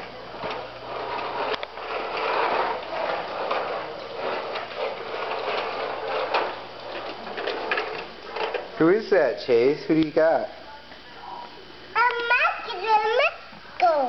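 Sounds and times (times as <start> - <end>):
toy truck rolling on wooden floor: 0.0 - 9.2.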